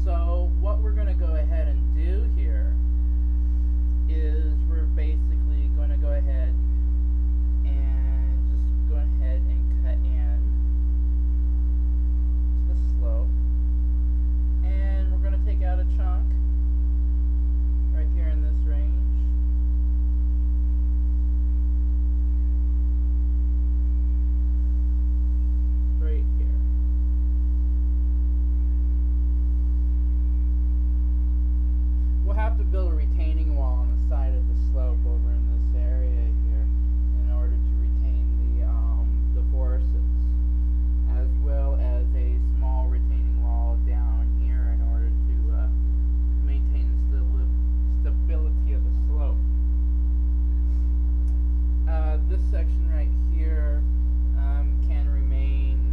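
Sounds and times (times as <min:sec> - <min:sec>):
electrical mains hum: 0:00.0 - 0:55.9.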